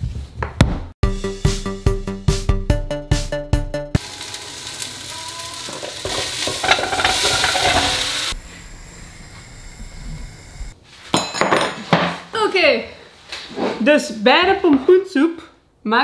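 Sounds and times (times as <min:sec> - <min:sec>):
food sizzling in pot: 0:04.0 - 0:10.8
squash cubes clattering into metal pot: 0:05.7 - 0:08.1.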